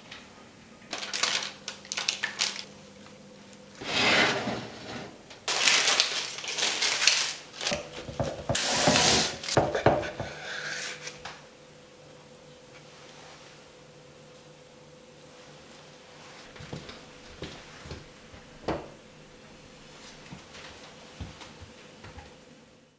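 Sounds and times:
baking parchment crinkling: 0.9s - 2.8s, 5.4s - 10.0s.

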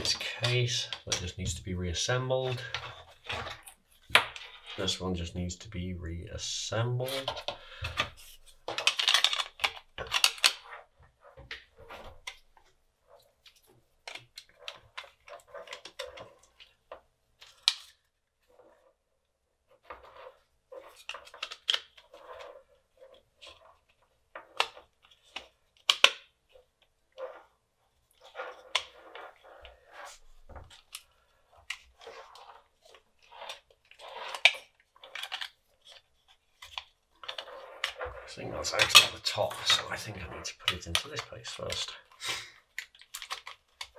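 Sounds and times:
plastic scraping and rustling: 0.0s - 5.3s, 6.4s - 43.9s.

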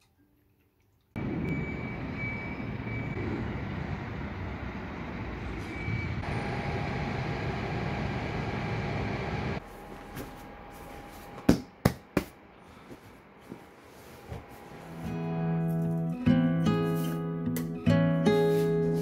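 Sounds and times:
traffic rumble: 1.2s - 11.5s.

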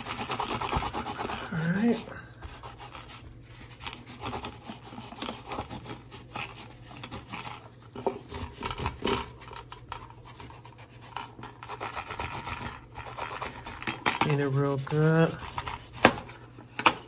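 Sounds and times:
cloth rubbing magazine: 12.0s - 16.5s.

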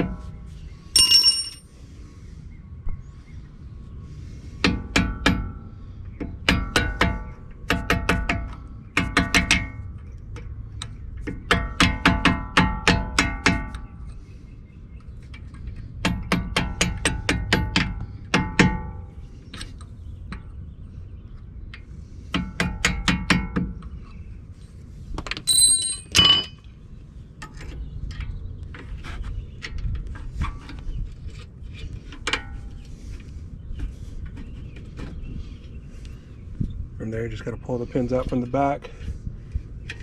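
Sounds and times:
tools tapping on metal: 1.0s - 1.6s, 25.3s - 26.6s
sharp metallic clink: 1.0s - 1.7s, 25.5s - 26.6s.

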